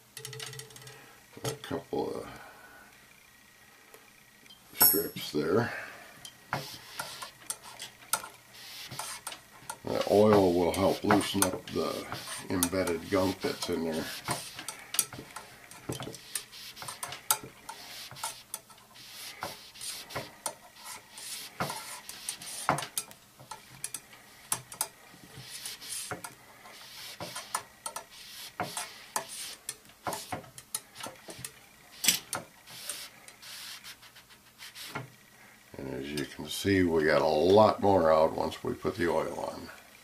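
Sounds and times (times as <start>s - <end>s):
rod scraping inside metal tube: 6.6s - 35.0s
rod clicking against tube: 27.2s - 28.1s.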